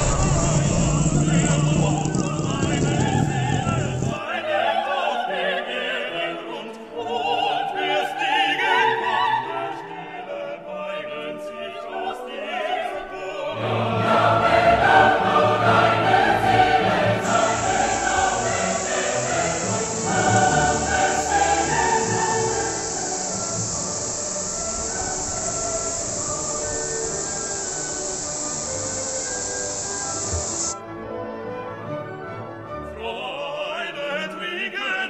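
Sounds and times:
operatic singing with music: 0.0s - 30.6s, 32.8s - 35.0s.

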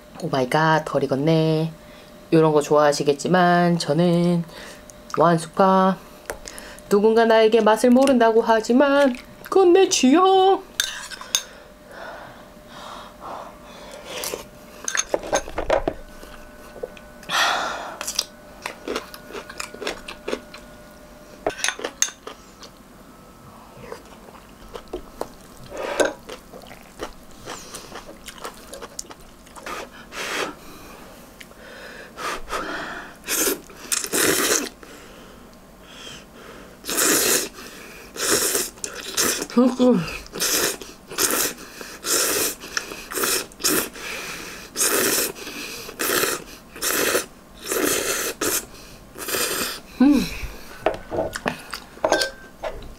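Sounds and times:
chewing: 18.0s - 20.6s, 23.8s - 29.7s
noodle slurps: 36.8s - 37.5s.

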